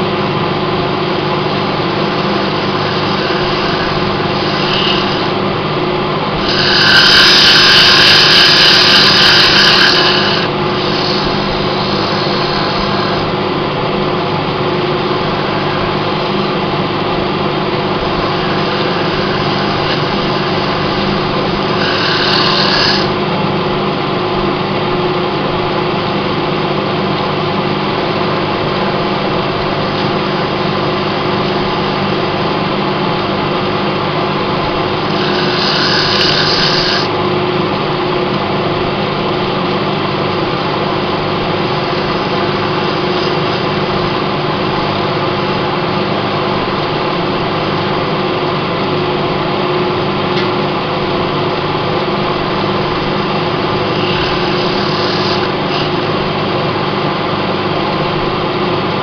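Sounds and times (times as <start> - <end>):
wood lathe running: 0.0 - 24.6, 28.0 - 59.0
sandpaper hissing on spinning wood: 1.7 - 5.4, 6.3 - 13.4, 15.1 - 16.7, 17.8 - 23.2, 34.9 - 37.1, 41.4 - 44.3, 52.9 - 56.4.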